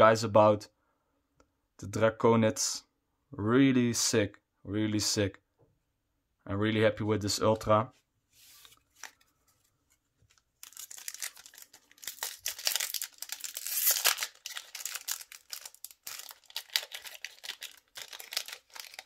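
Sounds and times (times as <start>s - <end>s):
foil wrapper crinkling and tearing: 10.3s - 19.0s.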